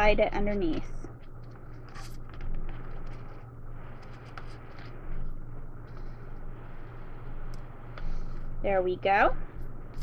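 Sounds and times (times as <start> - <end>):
steady low hum: 0.0 - 10.0
paper rustling and scraping: 1.6 - 3.4.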